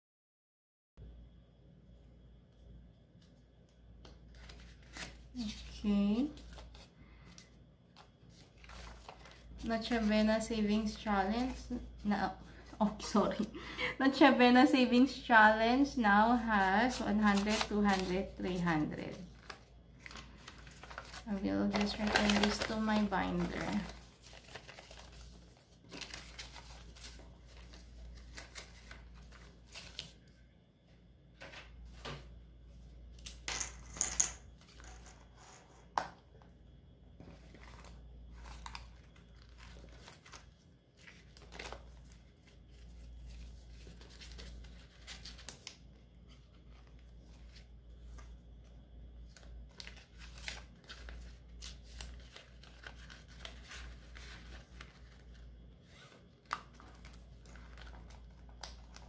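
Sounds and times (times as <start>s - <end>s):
paper and plastic rustling: 4.3s - 13.5s, 16.4s - 30.2s, 37.2s - 48.3s, 49.3s - 59.0s.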